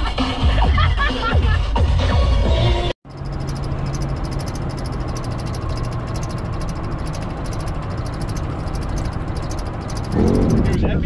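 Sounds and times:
vehicle engine hum and rumble: 0:03.0 - 0:10.8
faint high ticking: 0:03.1 - 0:10.8.

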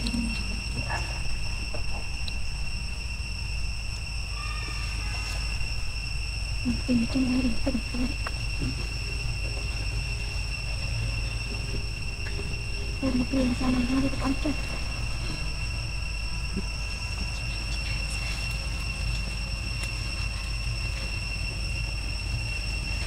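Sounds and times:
high-pitched insect drone: 0:00.0 - 0:23.0
low background rumble: 0:00.0 - 0:23.0.

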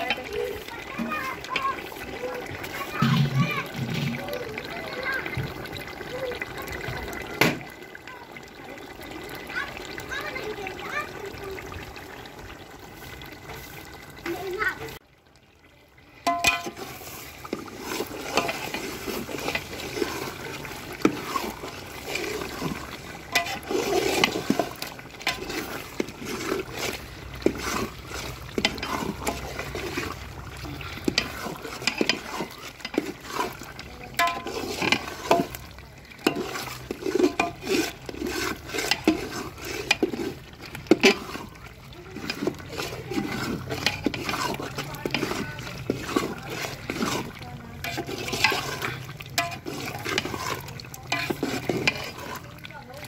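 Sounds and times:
wet squelching and scraping: 0:00.0 - 0:07.9, 0:08.7 - 0:15.0, 0:16.1 - 0:53.0
spatula clacking against pot: 0:16.3 - 0:21.8, 0:31.0 - 0:41.5, 0:42.1 - 0:52.5.

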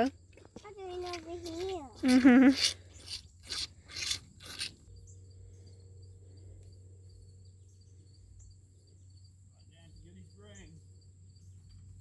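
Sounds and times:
crickets chirping: 0:00.0 - 0:12.0
rasping rubs: 0:01.0 - 0:04.8.

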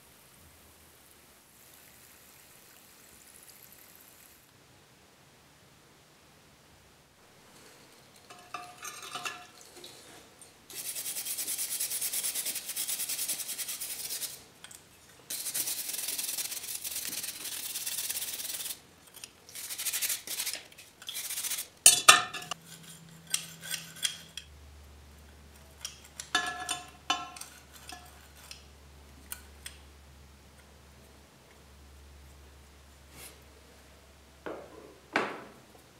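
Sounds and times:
metal tool scrubbed in liquid: 0:08.2 - 0:24.5, 0:25.7 - 0:28.7
metal clinking against glass: 0:08.3 - 0:09.6, 0:21.9 - 0:22.6, 0:26.2 - 0:28.1.

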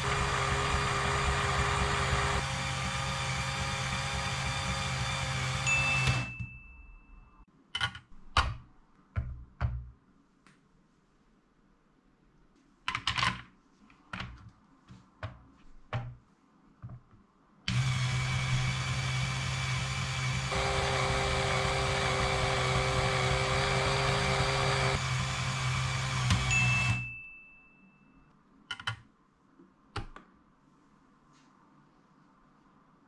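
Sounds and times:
small electric motor whirring: 0:17.7 - 0:27.0.

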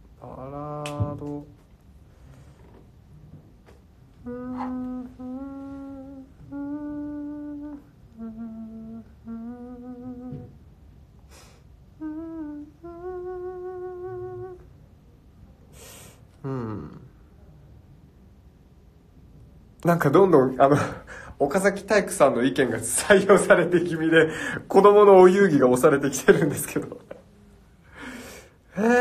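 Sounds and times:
man humming: 0:00.0 - 0:01.8, 0:04.1 - 0:10.6, 0:11.9 - 0:14.7, 0:16.2 - 0:17.3, 0:26.3 - 0:29.0
short hissing sounds: 0:15.7 - 0:16.3.

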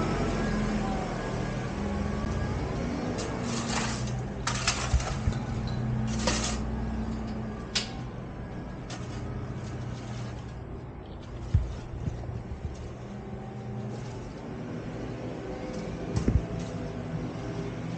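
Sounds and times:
diesel engine running: 0:00.0 - 0:17.9
scraping noises: 0:03.1 - 0:07.3, 0:08.8 - 0:14.7.

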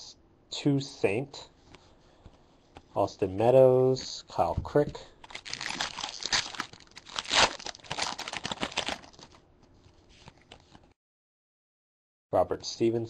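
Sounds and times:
foil wrapper crinkling and tearing: 0:05.2 - 0:09.4.

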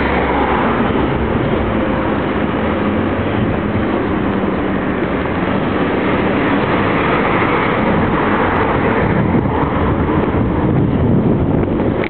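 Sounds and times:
road noise: 0:00.0 - 0:12.0
wind on microphone: 0:00.0 - 0:12.0.

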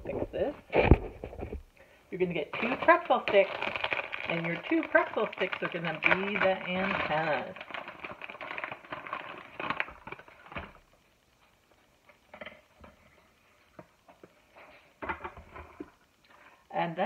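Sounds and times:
rustling: 0:02.5 - 0:16.2.

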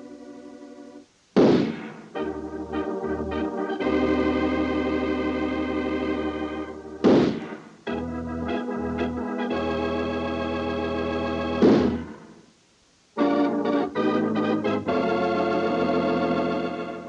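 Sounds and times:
organ playing held chords: 0:00.0 - 0:01.1, 0:02.0 - 0:12.4, 0:13.2 - 0:17.0
sudden loud crash: 0:01.4 - 0:02.0, 0:07.0 - 0:07.6, 0:11.6 - 0:12.2.

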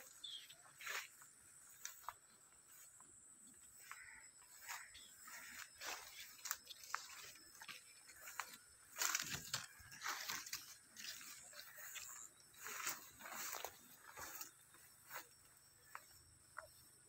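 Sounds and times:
leaves and grass rustling: 0:00.0 - 0:03.0, 0:03.8 - 0:16.1.

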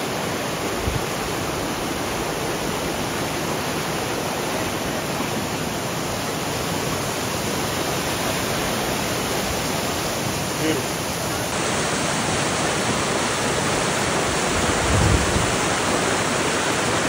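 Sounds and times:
waterfall roaring: 0:00.0 - 0:17.0.

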